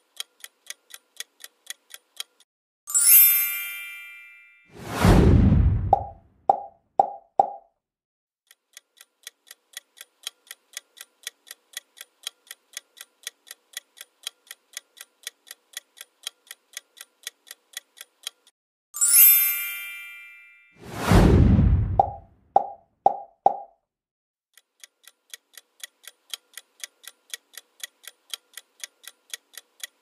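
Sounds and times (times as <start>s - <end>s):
clock ticking: 0.0s - 2.5s, 8.5s - 18.5s, 24.6s - 30.0s
chime ringing: 2.9s - 4.7s, 19.0s - 20.8s
loud whoosh: 4.8s - 6.2s, 20.8s - 22.2s.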